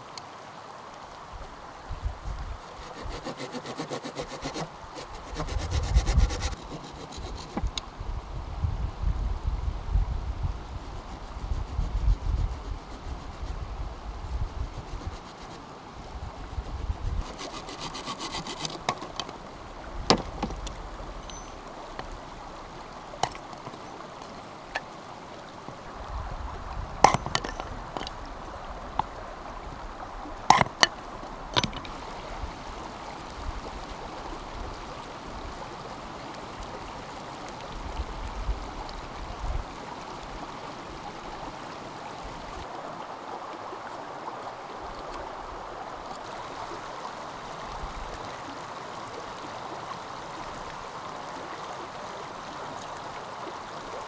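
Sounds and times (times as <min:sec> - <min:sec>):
stream rushing: 0:00.0 - 0:54.0
sharp knocks and clicks: 0:20.1 - 0:22.1, 0:23.2 - 0:23.8, 0:27.0 - 0:28.2, 0:30.5 - 0:31.9.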